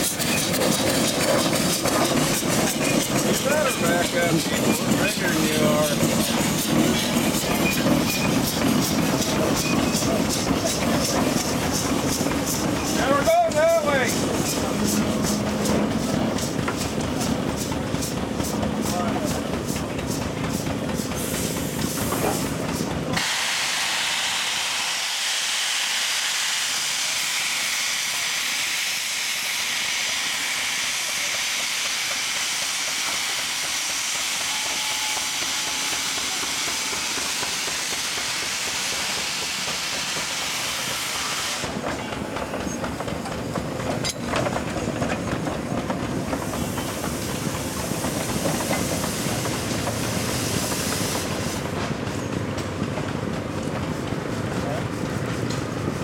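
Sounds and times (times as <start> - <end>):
engine rhythmic clatter: 0.0 - 23.2, 41.6 - 56.0
steam hissing: 0.0 - 56.0.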